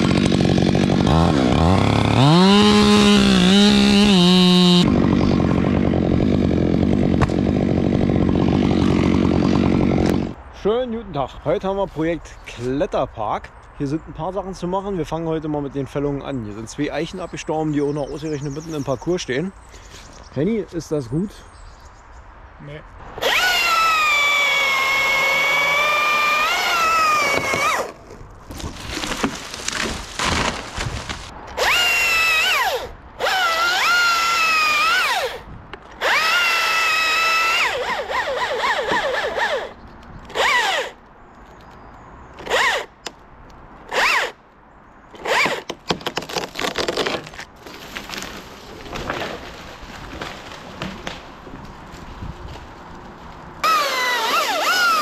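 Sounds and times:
power tool motor whining: 23.2s - 27.9s, 36.0s - 41.0s, 53.6s - 55.0s.

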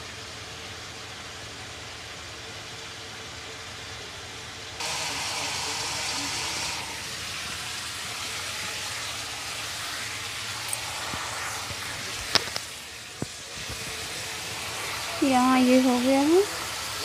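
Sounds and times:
food sizzling in hot oil: 4.8s - 17.0s.

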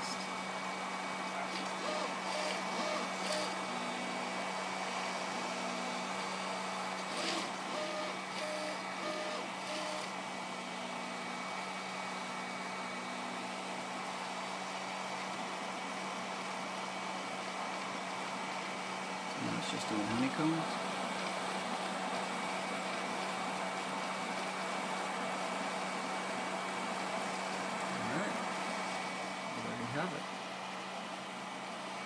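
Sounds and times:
stepper motor tones: 0.0s - 14.3s, 19.3s - 21.6s
printer hum: 0.0s - 32.0s.

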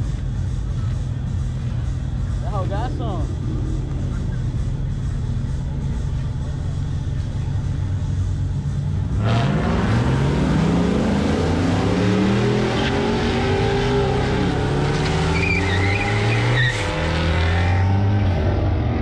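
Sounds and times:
background engines running: 0.0s - 15.4s
drag racing car accelerating: 0.4s - 19.0s.

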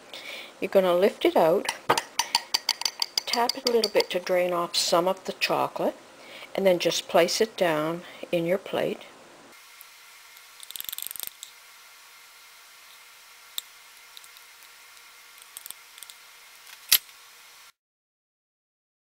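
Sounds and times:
fork clicking on glass and plates: 1.7s - 4.2s.

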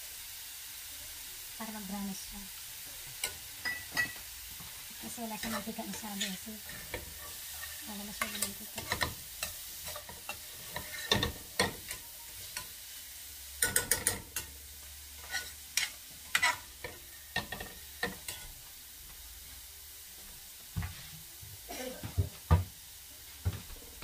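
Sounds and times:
onions sizzling in oil: 0.0s - 24.0s
metal turner clinking on frying pan: 3.2s - 4.2s, 5.3s - 12.7s, 13.6s - 14.6s, 15.2s - 18.5s.

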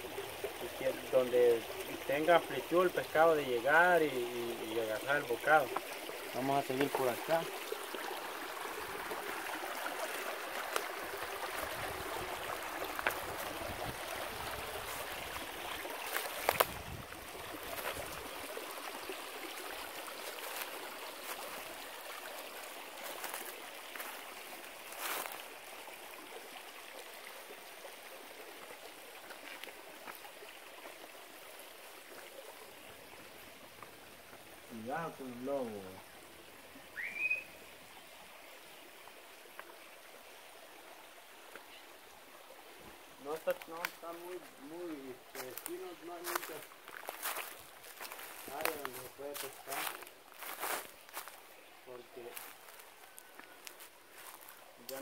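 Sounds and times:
creek trickling over rocks: 0.0s - 55.0s
footsteps on stones: 16.0s - 16.8s, 17.7s - 18.1s, 23.0s - 24.2s, 45.3s - 51.4s, 52.3s - 55.0s.

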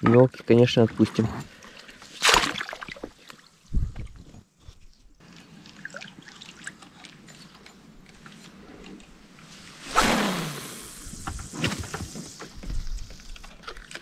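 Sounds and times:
small water splashes: 1.5s - 3.7s, 5.2s - 7.6s
water trickling and dripping: 5.2s - 8.5s.

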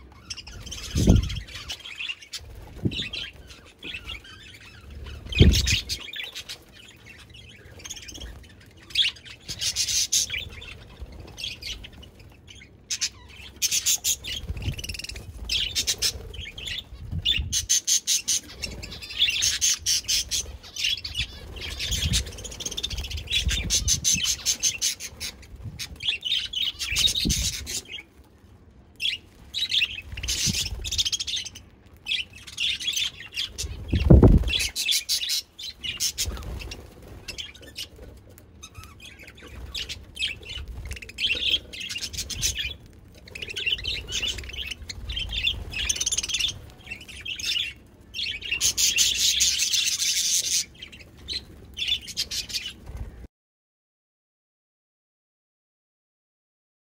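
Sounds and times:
budgerigars chattering and chirping: 0.2s - 28.1s, 38.6s - 52.8s.

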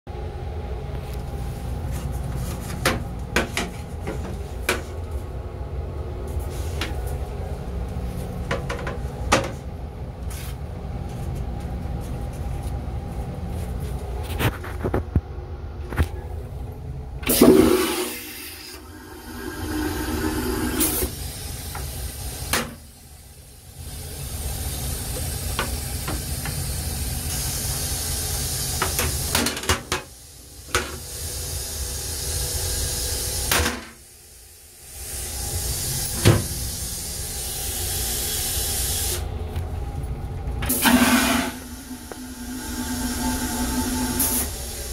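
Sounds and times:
low rumble of moving train car: 0.1s - 44.9s
steady hum of flush: 15.9s - 44.9s
toilet flushing whoosh: 17.2s - 22.9s, 40.6s - 44.9s
hiss: 17.3s - 39.3s, 40.7s - 44.9s.

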